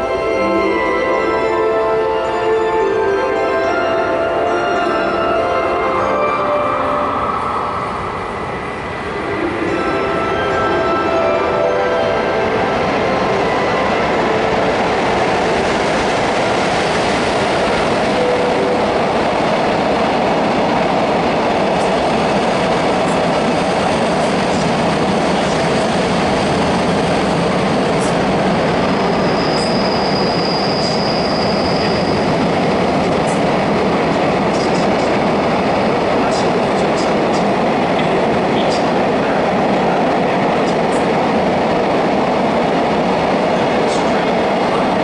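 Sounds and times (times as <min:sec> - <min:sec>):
train wheels rumbling on rail: 0:07.4 - 0:45.0
high wheel squeal: 0:28.8 - 0:32.4.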